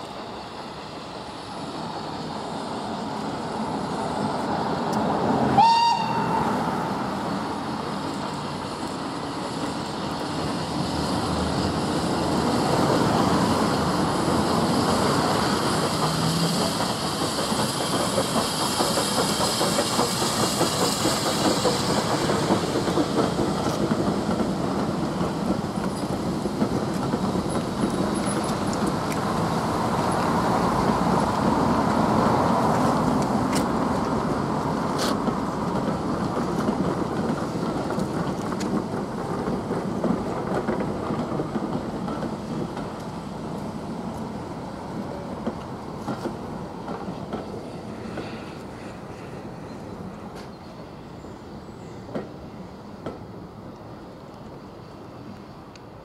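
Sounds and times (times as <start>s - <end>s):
steam locomotive passing: 0.0s - 56.0s
train coaches rumbling: 0.0s - 56.0s
wheels clacking over rail joints: 7.5s - 48.3s.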